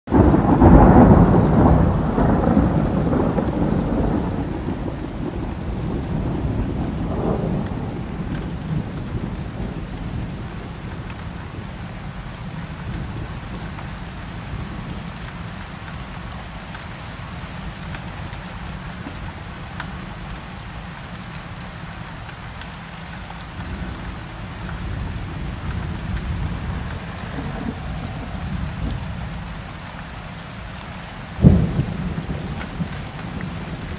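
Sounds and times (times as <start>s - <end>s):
low thunder rumble: 0.1s - 15.6s, 23.6s - 30.0s, 31.4s - 33.9s
steady rain: 0.1s - 33.9s.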